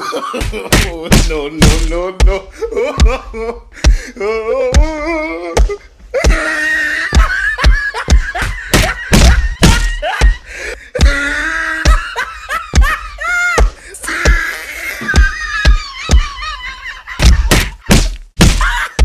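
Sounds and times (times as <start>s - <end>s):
person wailing: 0.0s - 17.8s
slaps and thumps of blows: 0.4s - 2.4s, 5.6s - 10.4s, 12.7s - 14.4s, 17.2s - 19.0s.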